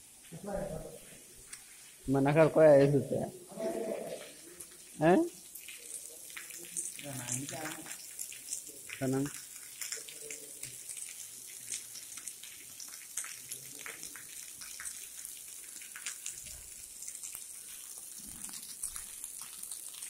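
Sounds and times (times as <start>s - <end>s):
rain running off roof edge: 0.0s - 20.0s
drops splashing on stone paving: 4.2s - 20.0s.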